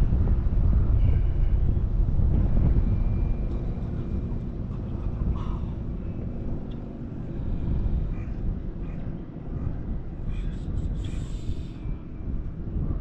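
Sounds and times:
wind rumbling on microphone: 0:00.0 - 0:13.0.

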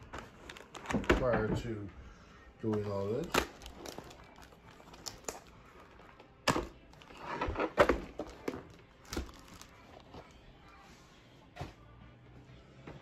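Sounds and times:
plastic film crinkling: 0:02.6 - 0:07.2, 0:08.2 - 0:10.2.

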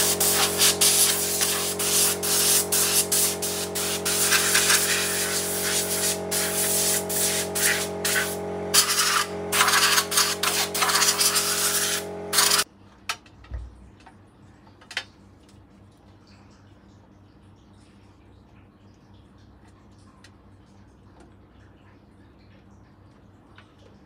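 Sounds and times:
pressurised spray hissing: 0:00.0 - 0:12.6
steady hum: 0:00.0 - 0:12.7.

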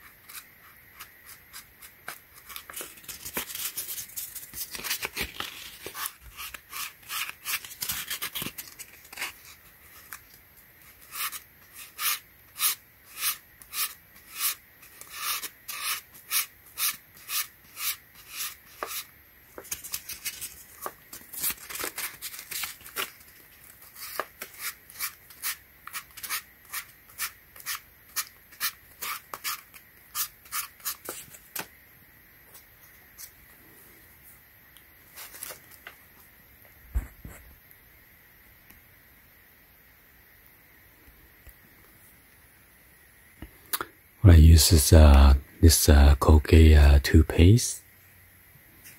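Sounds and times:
sandpaper scratching on foam: 0:00.2 - 0:08.4, 0:10.9 - 0:19.1, 0:23.9 - 0:31.2.

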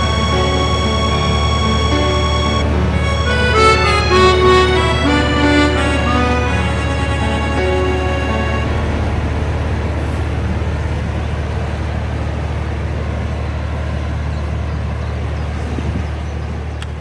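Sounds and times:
diesel engine droning: 0:00.0 - 0:17.0.

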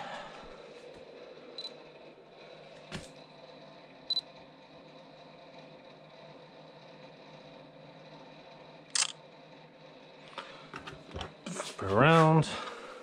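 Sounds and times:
camera beeps: 0:04.1 - 0:04.3.

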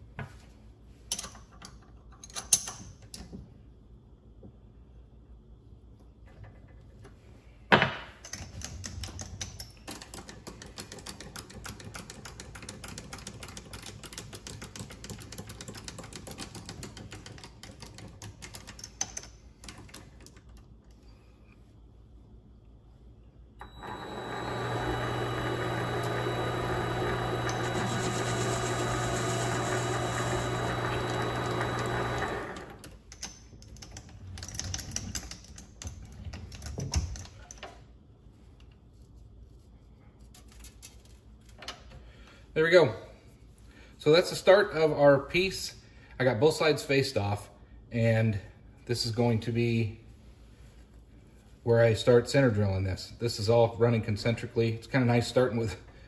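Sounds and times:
lathe motor running: 0:23.6 - 0:32.8.

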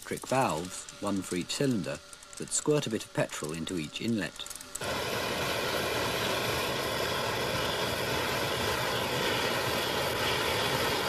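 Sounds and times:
roar of burning fuel flame: 0:04.8 - 0:11.0.

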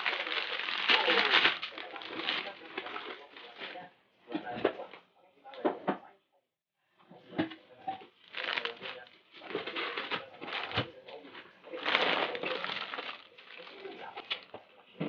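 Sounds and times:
plastic packaging crinkling: 0:00.0 - 0:03.8, 0:08.2 - 0:10.9, 0:11.7 - 0:14.5.

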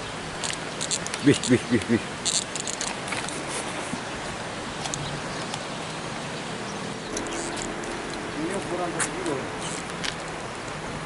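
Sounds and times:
distant traffic: 0:00.0 - 0:11.0
flowing canal water: 0:00.0 - 0:11.0.

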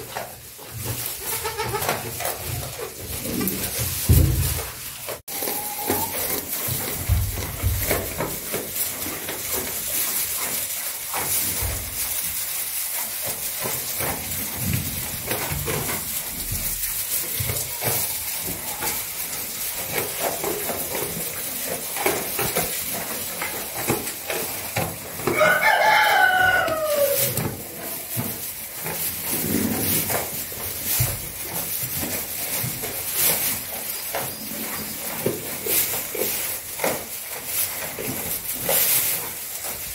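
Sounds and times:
straw rustling: 0:00.0 - 0:39.9
rooster crowing: 0:25.3 - 0:27.4.

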